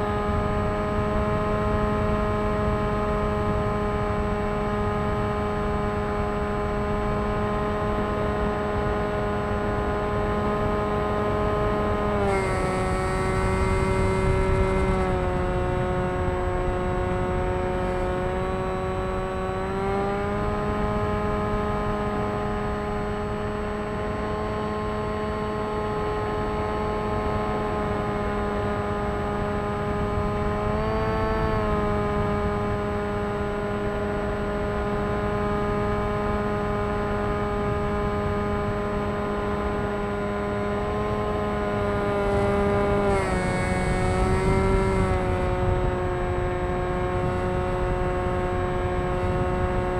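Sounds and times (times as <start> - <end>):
model aircraft motor whine: 0.0 - 49.9.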